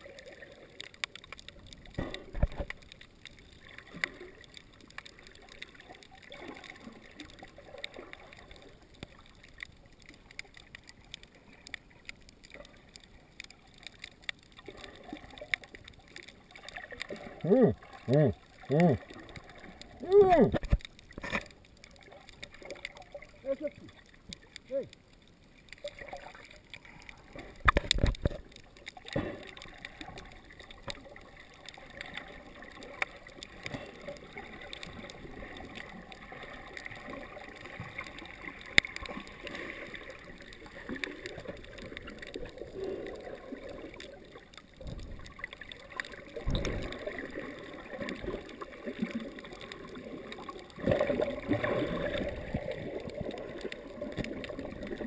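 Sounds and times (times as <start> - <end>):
muffled underwater gurgling: 16.5 - 20.9, 23.2 - 25.0.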